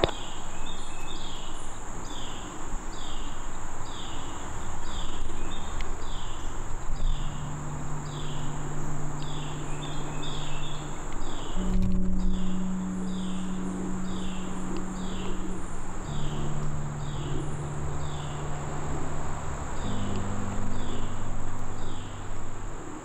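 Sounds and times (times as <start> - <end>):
insects buzzing: 0.0 - 23.0
low held music notes: 0.0 - 23.0.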